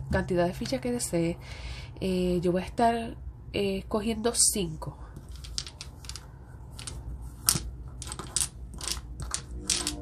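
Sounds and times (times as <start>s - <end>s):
domino tiles clicking: 5.2s - 10.0s.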